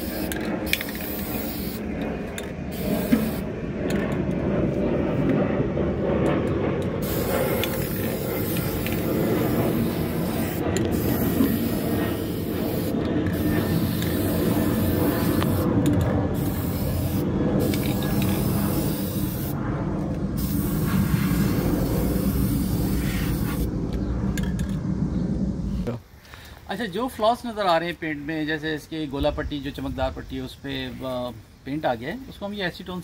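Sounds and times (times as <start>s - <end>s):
spray can hissing: 0.0s - 1.9s, 2.7s - 3.5s, 7.0s - 15.7s, 16.3s - 19.6s, 20.4s - 23.7s
low background rumble: 0.0s - 26.0s.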